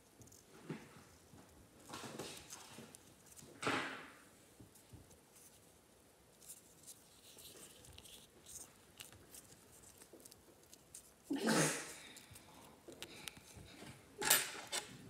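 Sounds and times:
thread rustling: 0:04.5 - 0:11.3.

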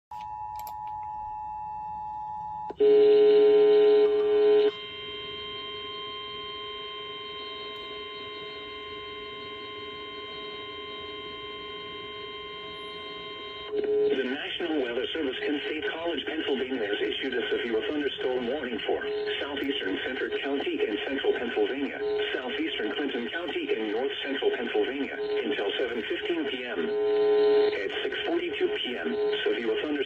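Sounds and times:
announcer speaking: 0:13.9 - 0:30.0.

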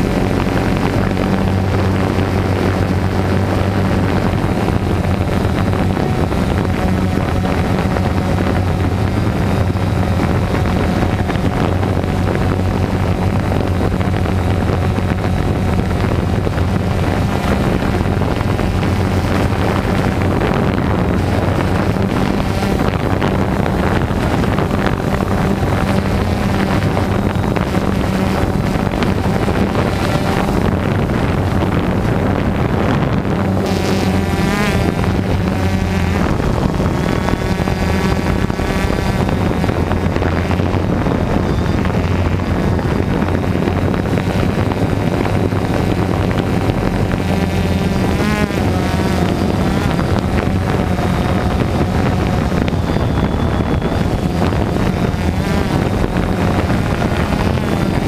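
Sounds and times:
drone propellers whirring: 0:00.0 - 0:58.0
wind noise on microphone: 0:00.0 - 0:58.0.

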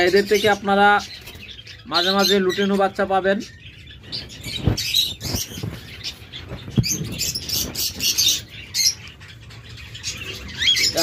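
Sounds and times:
caged birds chirping: 0:00.0 - 0:11.0.

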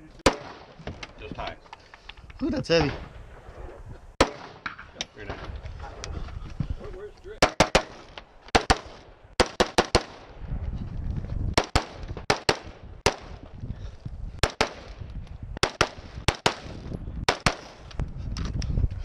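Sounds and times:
rifle shots: 0:00.2 - 0:00.8, 0:02.9 - 0:05.5, 0:07.4 - 0:10.4, 0:11.5 - 0:13.4, 0:14.4 - 0:15.0, 0:15.6 - 0:17.8.

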